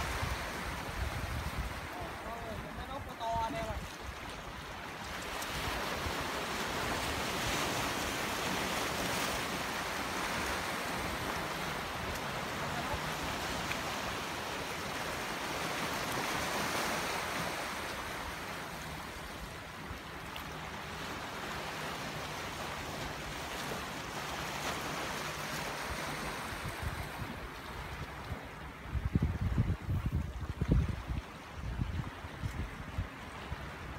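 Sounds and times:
wind on microphone: 0.0s - 4.6s, 25.6s - 33.9s
surf washing in: 0.0s - 33.9s.

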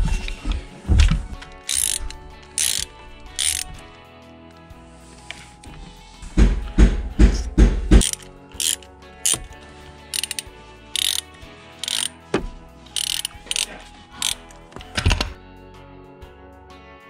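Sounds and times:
socket ratchet clicking: 1.4s - 3.9s, 8.0s - 12.2s, 12.9s - 15.4s
dull knocks: 6.4s - 8.0s.

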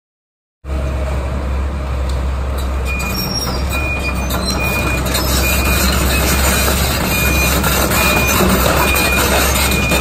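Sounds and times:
excavator diesel drone: 0.7s - 10.0s.

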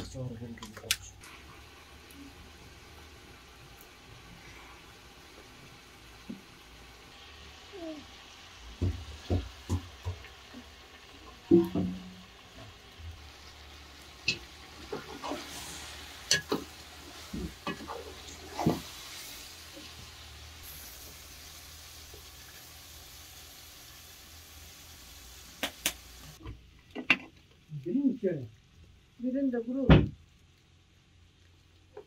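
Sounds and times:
food sizzling in hot oil: 1.2s - 26.4s.

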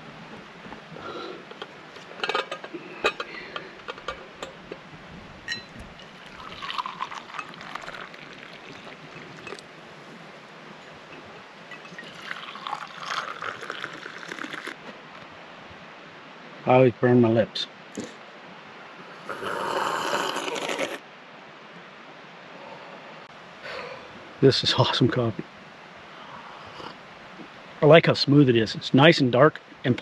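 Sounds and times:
coffee pouring into tumbler: 6.0s - 9.7s, 11.7s - 14.8s.

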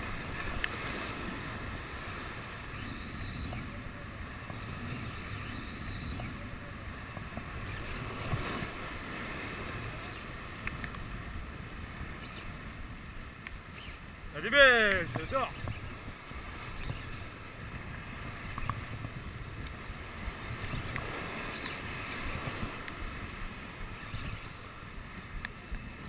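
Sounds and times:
wind buffeting microphone: 0.0s - 14.4s, 15.0s - 26.0s
surf washing against rocks: 0.0s - 26.0s
faint clicks: 0.4s - 0.8s, 10.0s - 11.1s, 13.4s - 14.1s, 18.4s - 19.8s, 20.6s - 21.8s, 25.2s - 25.9s.

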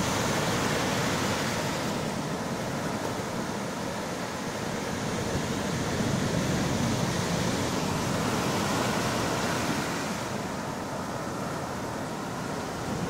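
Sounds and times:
waves breaking on shore: 0.0s - 13.0s.

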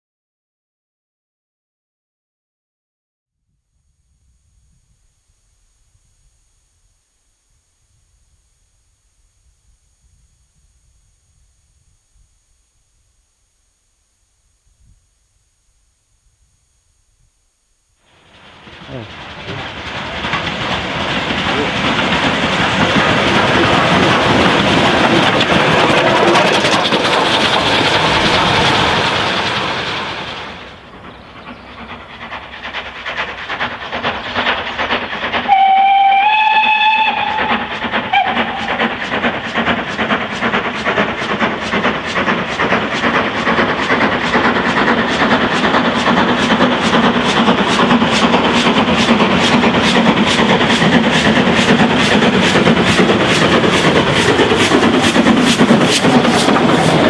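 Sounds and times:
steam locomotive beats: 18.0s - 57.0s
steam locomotive running past: 18.0s - 57.0s
steam locomotive whistle: 35.4s - 39.0s.

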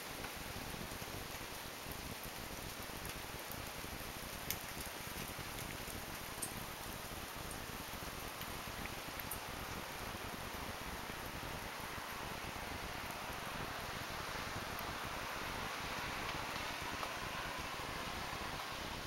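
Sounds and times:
hailstones ticking: 0.0s - 13.6s, 15.9s - 17.4s
hail pelting the ground: 0.0s - 19.0s.

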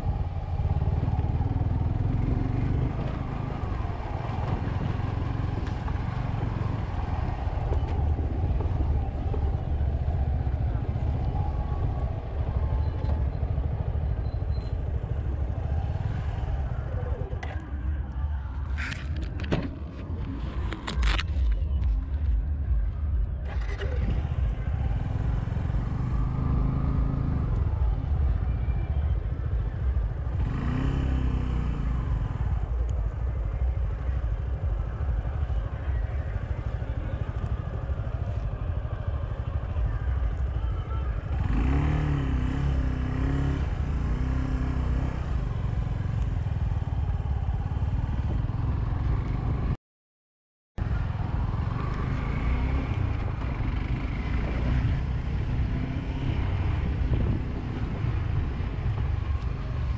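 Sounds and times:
motorcycle engine revving: 23.0s - 49.8s, 50.8s - 59.9s.

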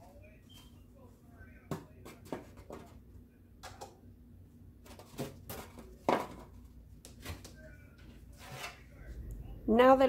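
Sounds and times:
boards knocking and scraping: 4.9s - 6.6s.

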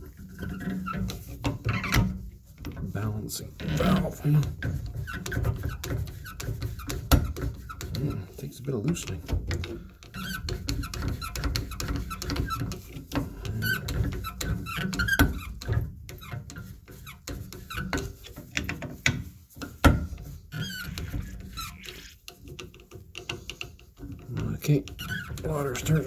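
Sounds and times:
metal blade squeaking and scraping: 20.5s - 22.2s, 24.4s - 26.0s.

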